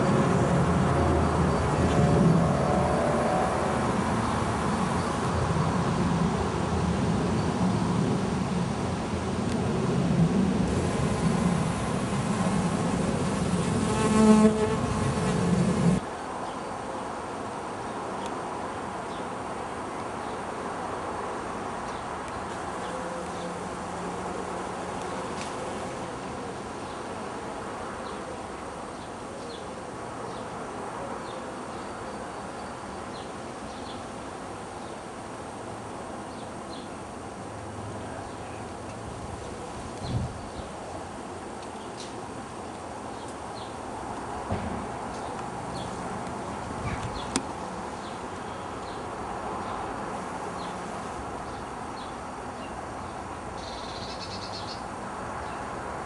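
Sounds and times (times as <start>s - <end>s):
background hiss: 3.3s - 56.0s
flying insect buzzing: 10.7s - 16.0s.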